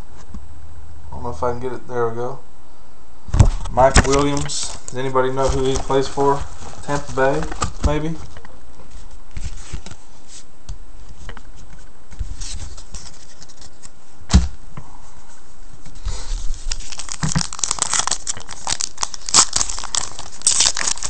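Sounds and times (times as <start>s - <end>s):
foil wrapper tearing and crinkling: 4.0s - 8.2s, 16.3s - 21.0s.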